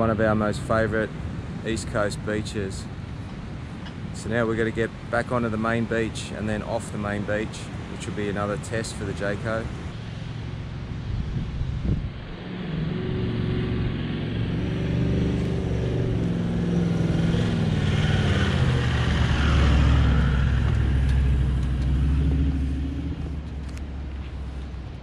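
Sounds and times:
diesel engine under load: 9.7 - 25.0.

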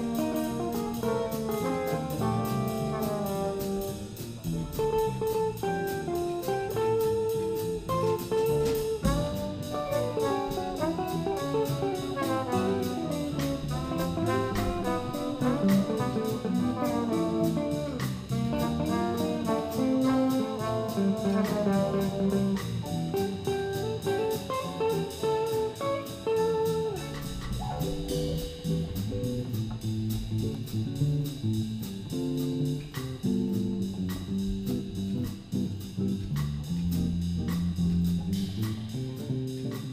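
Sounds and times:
jazz combo playing: 0.0 - 39.9
alto saxophone melody: 8.0 - 22.6.

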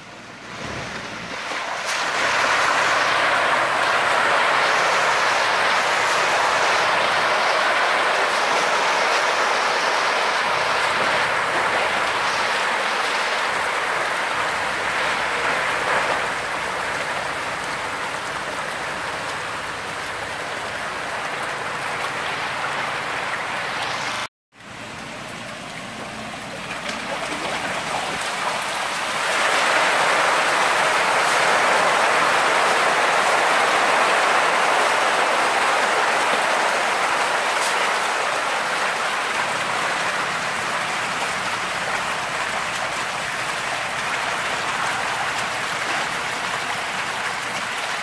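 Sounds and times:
fish splashing in water: 0.4 - 38.6.

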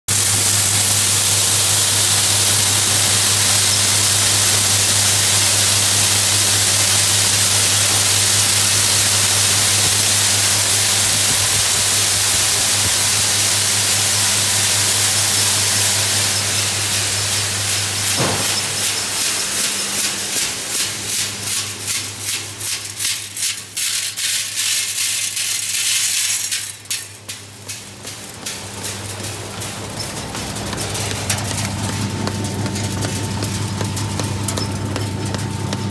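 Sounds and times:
chickpeas rattling on a shaking sieve: 18.8 - 31.9
steady motor hum: 26.6 - 35.9.

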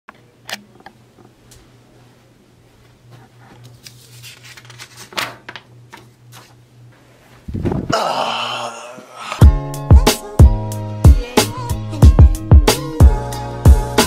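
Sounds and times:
paper sheet pulled off pin: 3.6 - 5.4
paper rustling and clicks: 3.6 - 6.6.

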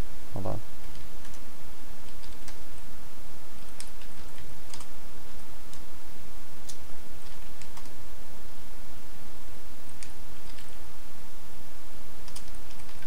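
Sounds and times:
computer keyboard keys clicking: 0.8 - 1.4, 2.0 - 2.6, 3.6 - 4.9, 6.6 - 8.0, 9.9 - 10.8, 12.2 - 13.0.

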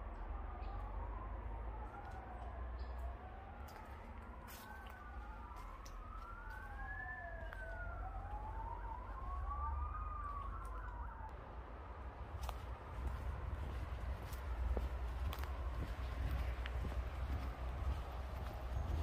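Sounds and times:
emergency sirens wailing: 0.0 - 19.0.

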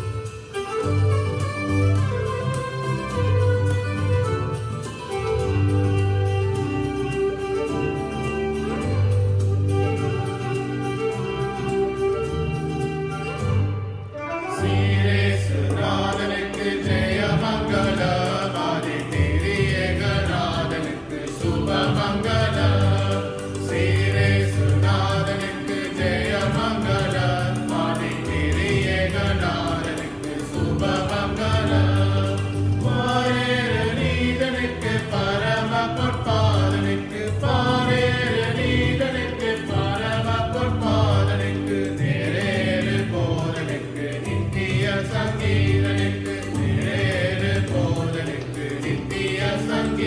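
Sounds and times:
instrumental accompaniment: 0.0 - 50.0
choir singing a hymn: 14.6 - 50.0.

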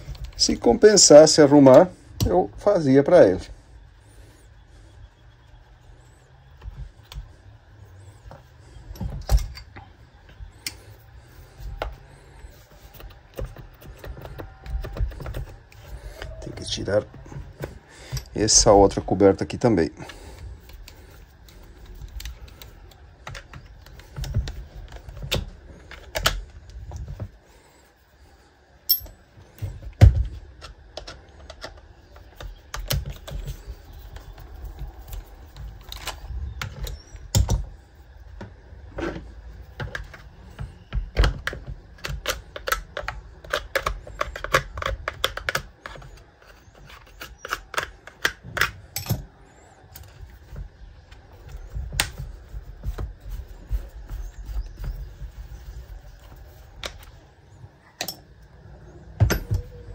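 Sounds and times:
plastic parts clicking: 20.0 - 27.3, 28.9 - 37.7, 38.3 - 57.2.

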